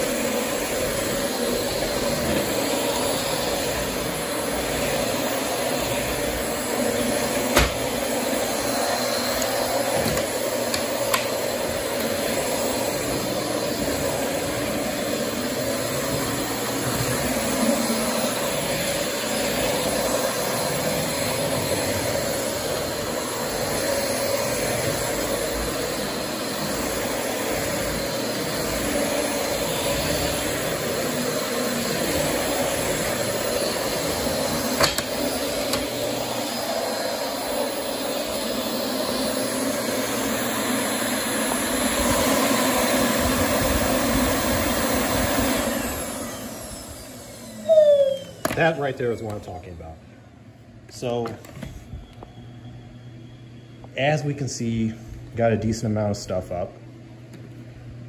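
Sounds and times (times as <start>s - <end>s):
vacuum motor winding down: 0.0s - 49.3s
vacuum cleaner running: 0.0s - 58.0s.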